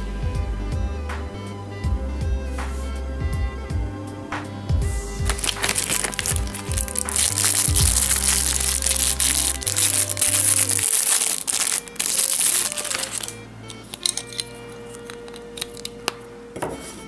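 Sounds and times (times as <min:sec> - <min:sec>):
background music: 0:00.0 - 0:17.0
plastic bag crinkling: 0:05.2 - 0:16.0
acrylic pieces clicking and tapping: 0:05.3 - 0:16.7.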